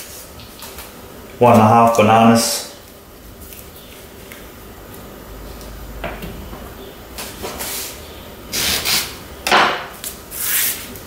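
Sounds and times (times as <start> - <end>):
bananas being peeled rustling: 2.8 - 9.2, 9.9 - 11.0.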